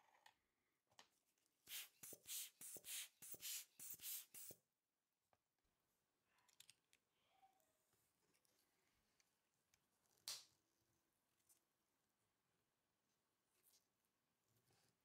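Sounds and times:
air blower hissing puffs: 1.7s - 4.6s.

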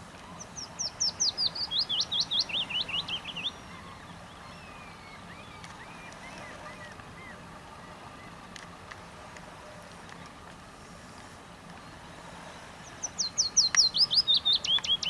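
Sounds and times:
faint low hum: 0.0s - 15.0s
songbird singing: 0.0s - 15.0s
faint bird calls: 0.2s - 8.5s.

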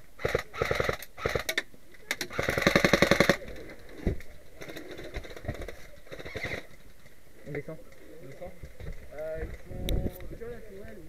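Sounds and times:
airsoft rifle full-auto burst: 0.2s - 1.6s, 2.3s - 3.4s, 6.1s - 6.7s
knocks and rustling of players: 1.6s - 11.0s.

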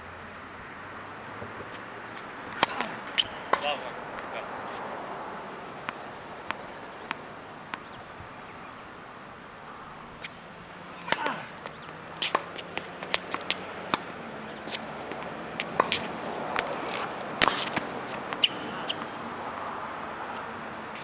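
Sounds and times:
tennis ball bouncing on court: 1.4s - 4.3s, 5.8s - 8.0s, 10.9s - 19.2s
racket hitting tennis ball: 1.6s - 3.8s, 10.9s - 19.2s.

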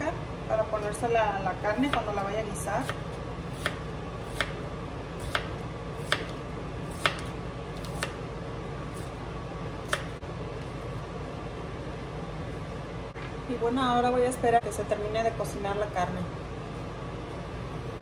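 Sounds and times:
steady low hum: 0.0s - 18.0s
knife chopping on cutting board: 2.8s - 4.6s, 5.2s - 8.2s, 9.8s - 10.2s.

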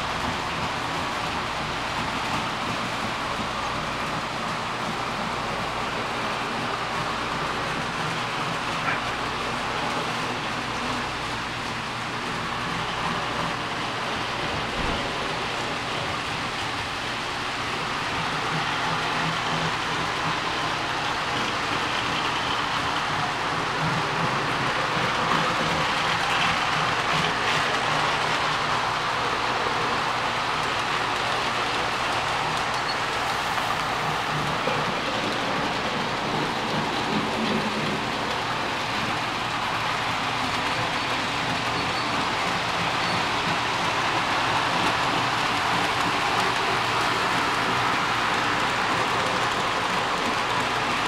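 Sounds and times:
model train wheels rumbling: 0.0s - 51.0s.

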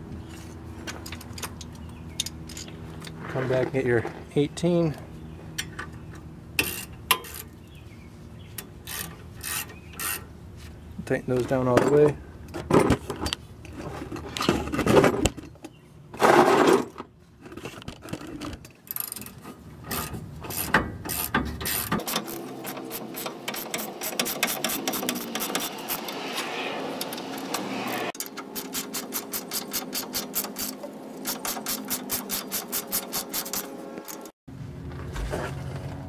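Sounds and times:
ratchet wrench clicking: 19.9s - 26.1s.

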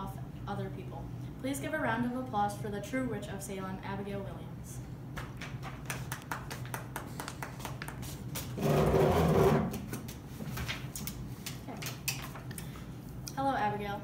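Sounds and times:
people clapping: 5.2s - 8.5s.

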